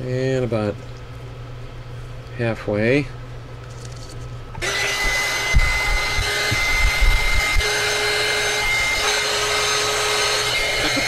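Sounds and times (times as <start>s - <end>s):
heat gun fan whine: 0.0s - 11.0s.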